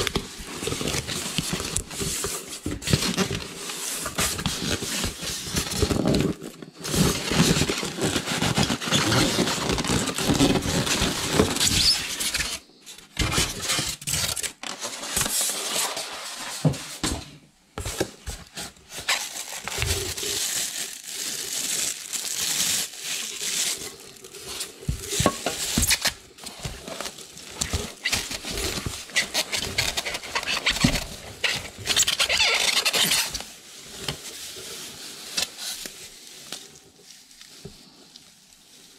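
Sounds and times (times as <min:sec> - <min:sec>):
plastic wrap crinkling: 0:00.0 - 0:16.5, 0:17.8 - 0:38.9
foam squeaking against cardboard: 0:07.2 - 0:12.6, 0:18.8 - 0:21.1, 0:24.8 - 0:26.2, 0:27.6 - 0:33.5.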